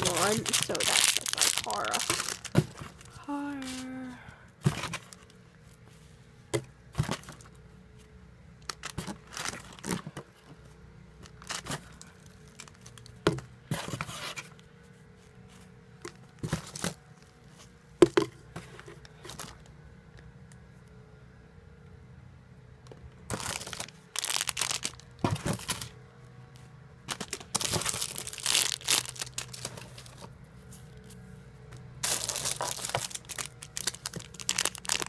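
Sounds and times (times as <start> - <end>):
plastic wrappers crinkling: 0.0 - 3.8, 8.7 - 10.0, 11.3 - 13.1, 23.3 - 25.9, 27.1 - 30.3, 32.0 - 35.0
faint steady hum: 0.0 - 35.0.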